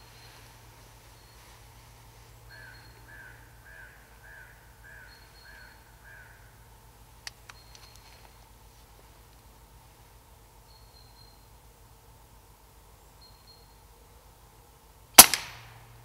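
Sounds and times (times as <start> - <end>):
crow cawing: 2.5 - 6.6.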